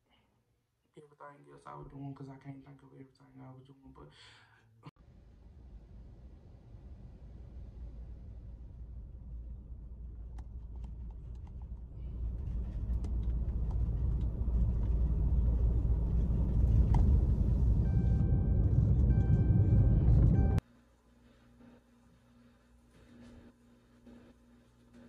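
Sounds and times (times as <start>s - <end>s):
car road and engine rumble: 5.1s - 20.6s.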